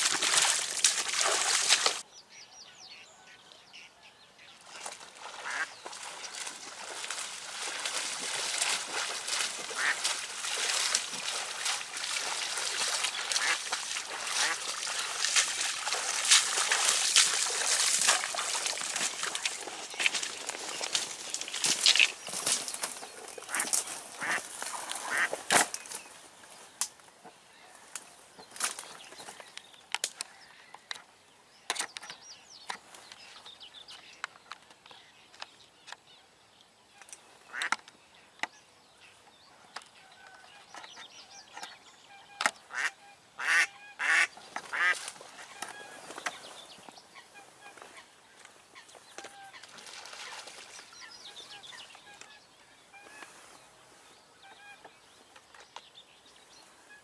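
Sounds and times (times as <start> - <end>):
hen duck quacking: 5.4 - 5.7, 9.8 - 10.0, 24.2 - 24.4, 42.7 - 45.0.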